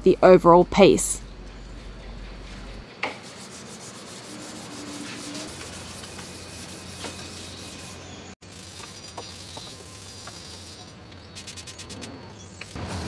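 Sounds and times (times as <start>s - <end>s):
sharp scrape: 3.2s - 10.8s
sandpaper rubbing: 3.2s - 12.1s.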